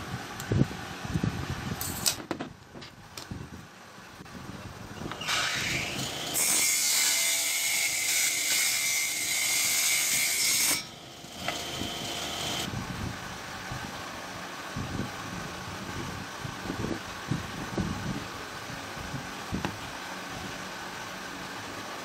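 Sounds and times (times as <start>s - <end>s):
table saw cutting wood: 5.2s - 12.7s.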